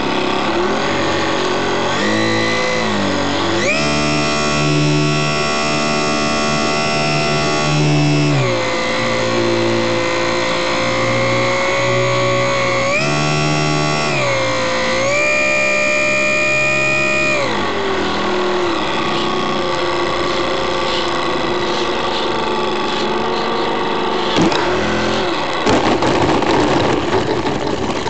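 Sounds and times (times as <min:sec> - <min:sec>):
electric motor and propeller whining: 0:00.0 - 0:28.0
wheels rattling on gravel: 0:18.2 - 0:28.0.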